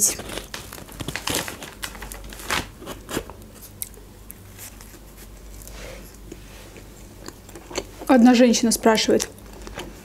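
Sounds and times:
pizza crust crunching: 0.0 - 7.9
quiet chewing: 3.6 - 8.1.

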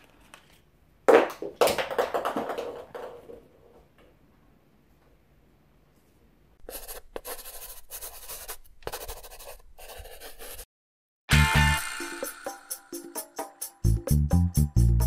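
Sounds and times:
pen scribbling: 6.6 - 10.7.

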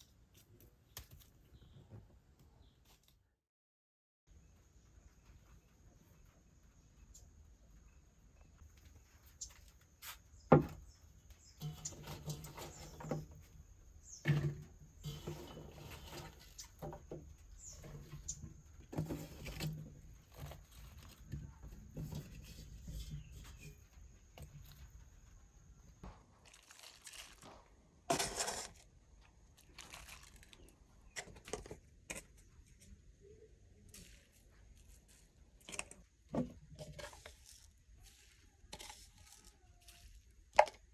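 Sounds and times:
leaves rustling and knocking in pot: 8.9 - 25.1, 25.8 - 32.9, 33.8 - 40.9.

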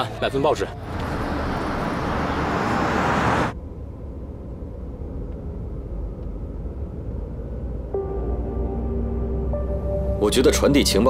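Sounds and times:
car engine drone inside cabin: 0.8 - 10.7.

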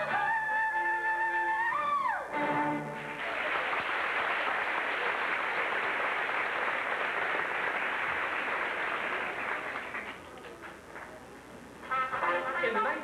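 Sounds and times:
audience applauding: 2.5 - 11.2.

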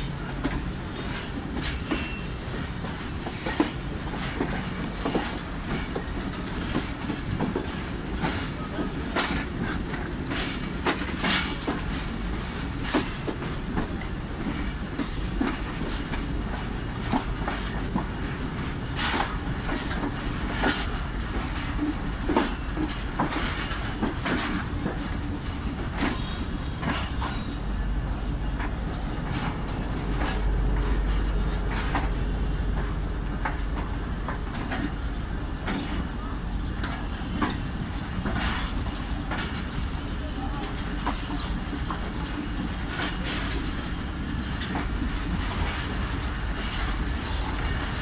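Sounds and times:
train running rumble: 0.0 - 48.0
wheel clacks over rail joints: 0.0 - 48.0.

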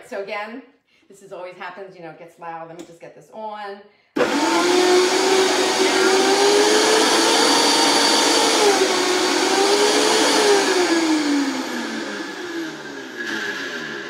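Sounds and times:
blender motor running: 4.2 - 14.0.

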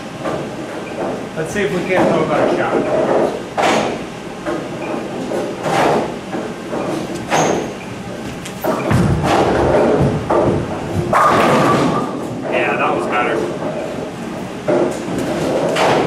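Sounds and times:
bowling ball rolling rumble: 8.2 - 12.6
ball crashing into pins: 8.6 - 12.3
bowling ball landing thud: 8.6 - 12.4.

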